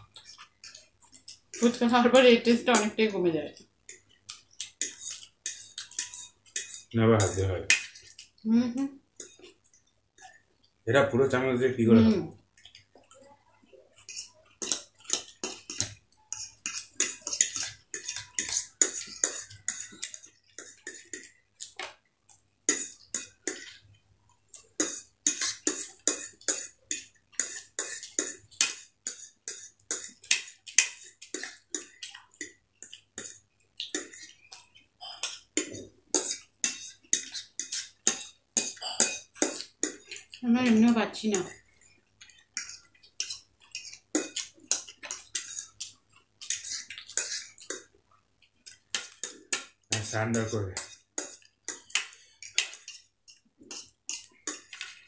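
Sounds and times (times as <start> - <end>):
forks clicking on plates: 14.0 - 21.8.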